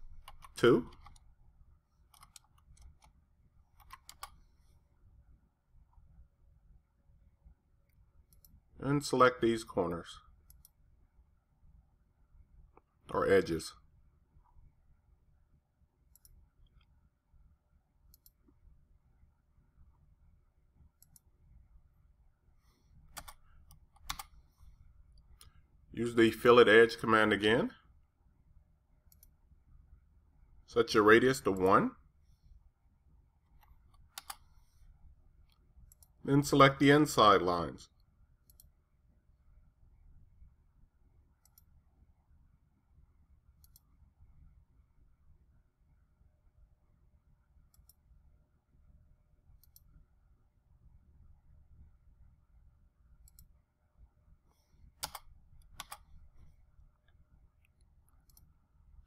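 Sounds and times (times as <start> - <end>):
computer mouse clicks: 0.1 - 1.3, 2.1 - 3.2, 3.8 - 4.5, 7.9 - 8.6, 10.4 - 10.8, 16.1 - 17.0, 18.1 - 18.6, 20.9 - 21.3, 23.1 - 24.4, 29.1 - 29.4, 33.5 - 34.8, 35.4 - 36.2, 38.4 - 38.8, 41.4 - 41.7, 43.6 - 43.9, 47.7 - 48.0, 49.5 - 50.0, 53.2 - 53.6, 54.5 - 58.6.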